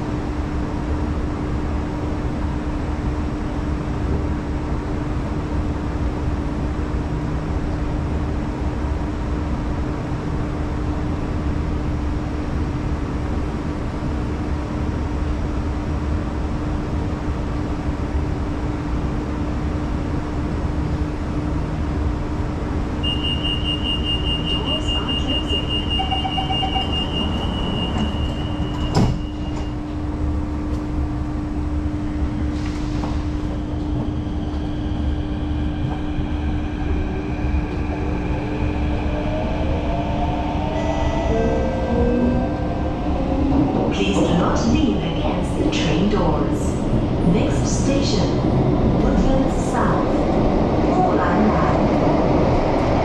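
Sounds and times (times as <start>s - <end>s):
train hum at platform: 0.0s - 53.0s
high-pitched door warning beep: 23.0s - 29.8s
train doors sliding shut: 27.1s - 29.8s.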